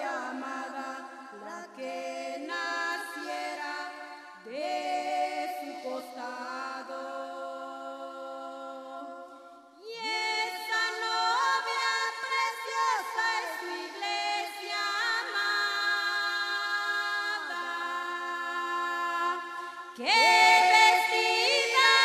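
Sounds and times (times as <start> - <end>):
women singing a hymn: 0.0 - 22.0.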